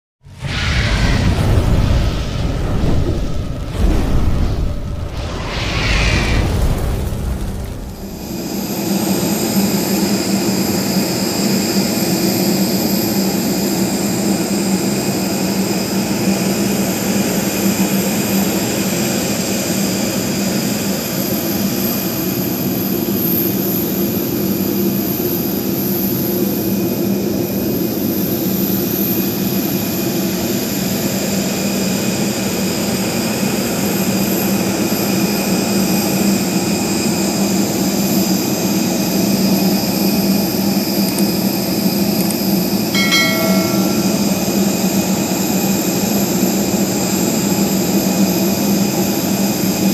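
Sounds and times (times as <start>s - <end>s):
jet turbines humming and whining: 0.2s - 10.0s.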